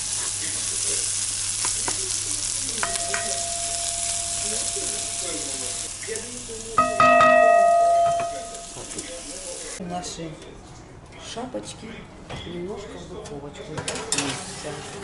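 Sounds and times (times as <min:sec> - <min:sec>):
food sizzling in a frying pan: 0:00.0 - 0:09.8
electronic hob beep: 0:02.8 - 0:05.9.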